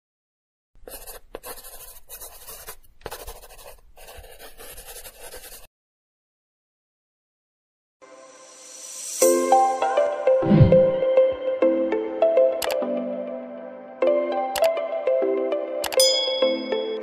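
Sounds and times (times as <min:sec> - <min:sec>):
marker pen scratching: 0:00.8 - 0:05.7.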